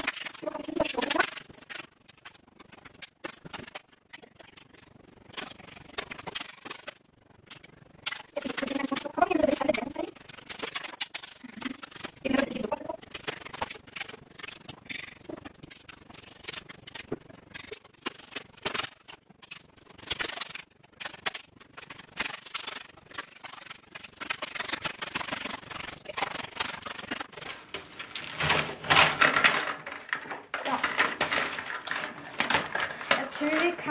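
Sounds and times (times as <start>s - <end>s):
gingerbread cracking and snapping: 0.0s - 33.9s
pieces scraping on baking tray: 24.4s - 33.9s.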